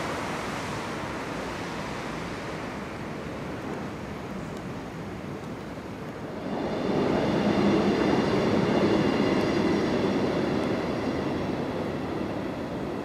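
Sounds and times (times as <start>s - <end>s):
faint high whine: 6.2s - 13.0s.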